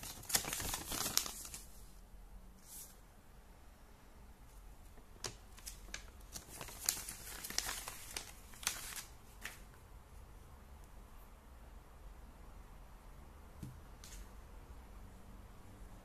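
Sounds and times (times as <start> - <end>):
paper rustling and crinkling: 0.0 - 1.8, 5.2 - 9.8.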